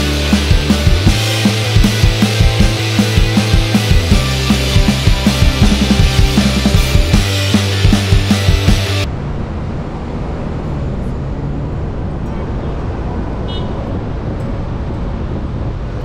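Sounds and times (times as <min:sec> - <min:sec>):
rock music: 0:00.0 - 0:09.1
low city traffic rumble: 0:09.0 - 0:16.0.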